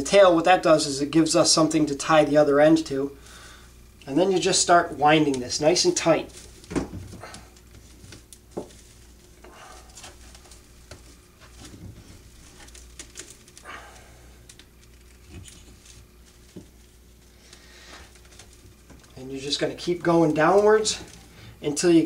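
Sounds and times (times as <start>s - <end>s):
twine rustling: 2.3s - 22.0s
twigs crackling: 3.2s - 22.0s.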